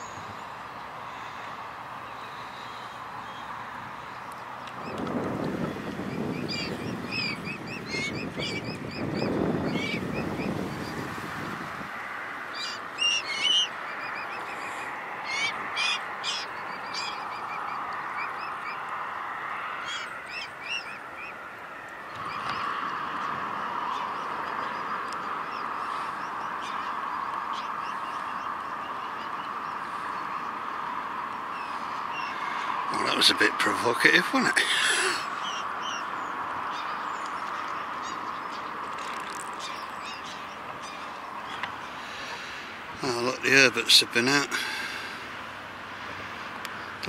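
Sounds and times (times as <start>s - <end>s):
cygnets peeping: 2.0s - 19.2s, 19.8s - 21.4s, 22.0s - 44.5s
wind buffeting microphone: 4.2s - 19.4s.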